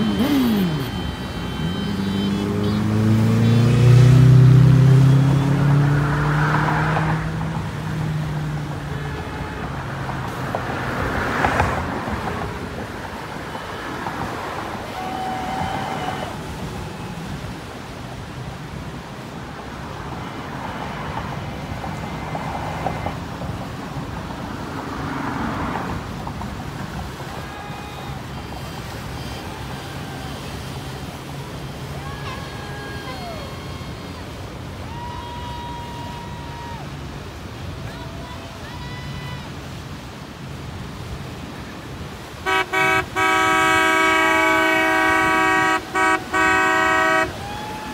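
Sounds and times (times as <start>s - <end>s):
close boat engine low hum: 0.0s - 5.8s
boat engines droning: 0.0s - 47.9s.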